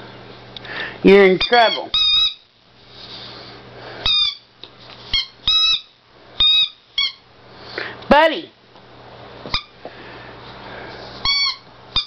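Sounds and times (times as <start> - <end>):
squeaky toy squeaking: 1.4 - 2.4, 4.1 - 4.4, 5.1 - 7.2, 11.2 - 12.0.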